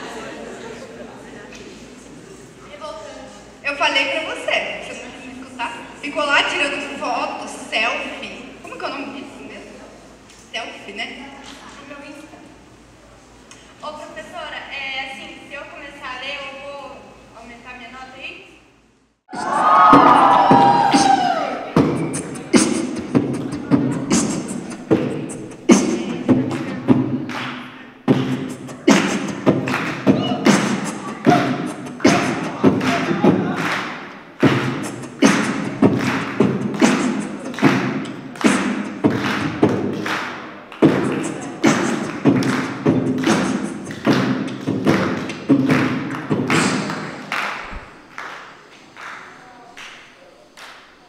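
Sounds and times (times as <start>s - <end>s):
beatboxing into a microphone: 19.3s - 40.0s, 40.8s - 47.2s.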